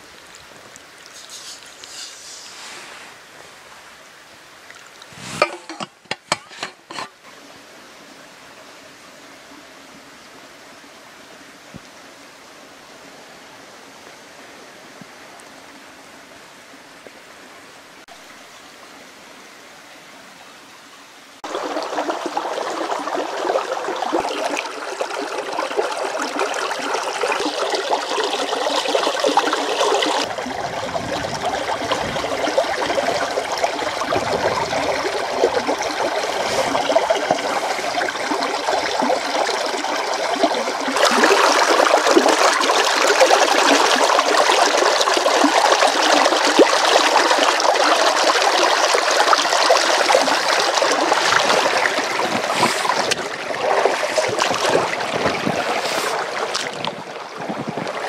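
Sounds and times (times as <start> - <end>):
stream splashing over pebbles: 0.0 - 6.3, 21.4 - 58.0
hand stirring water: 5.0 - 7.2
metal bottle knocking on pot: 5.4 - 7.1.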